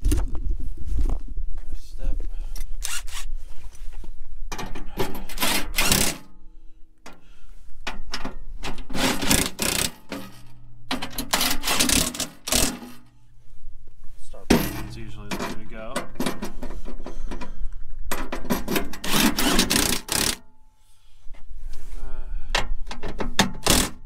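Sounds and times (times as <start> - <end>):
impact driver hammering: 5.0 - 6.3, 8.9 - 13.1, 18.2 - 20.4, 23.2 - 24.0.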